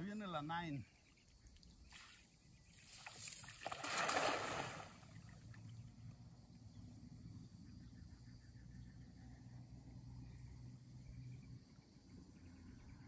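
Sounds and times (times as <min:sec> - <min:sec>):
net splashing onto water: 0:02.8 - 0:05.4.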